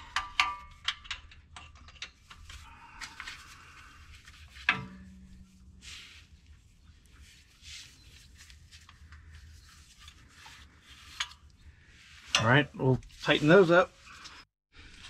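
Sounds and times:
hand tools clicking on bolts: 0.0 - 2.7.

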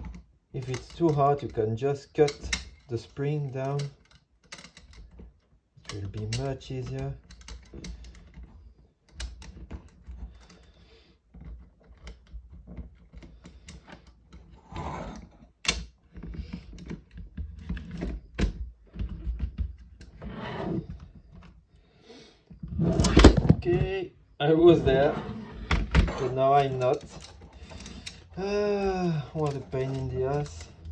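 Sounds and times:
plastic clicks and knocks: 15.4 - 20.2
plastic rubbing: 22.4 - 30.9.

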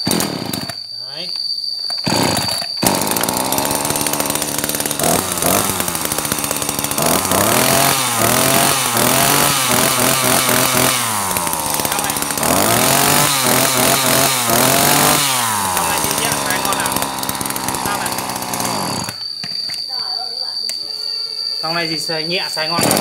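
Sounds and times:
chainsaw engine idling and revving: 0.0 - 0.8, 2.0 - 19.2, 22.6 - 23.0.

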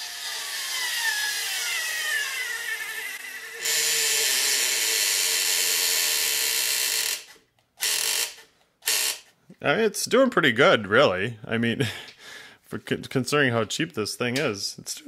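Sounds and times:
cordless screwdriver motor whine: 0.0 - 9.2.

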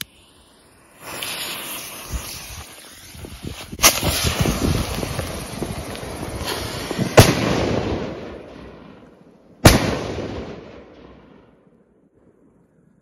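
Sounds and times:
firework crackle: 0.0 - 11.5
firework bangs: 0.9 - 9.0, 9.6 - 11.5.

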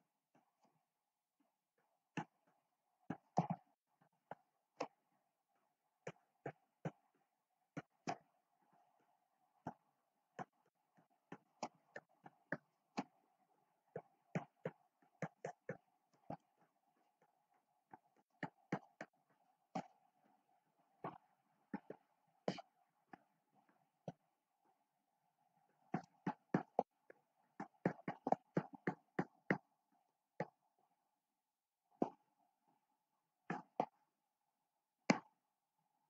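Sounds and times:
stylus pen tapping on tablet: 27.6 - 29.7.

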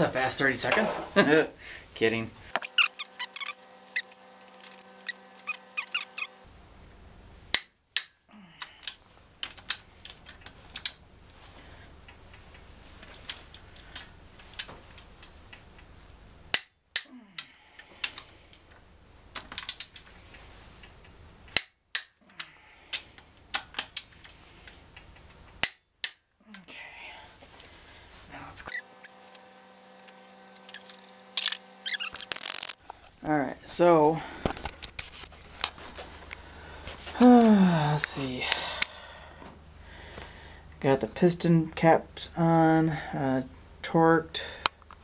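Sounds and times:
ratchet wrench clicking: 31.4 - 32.8.

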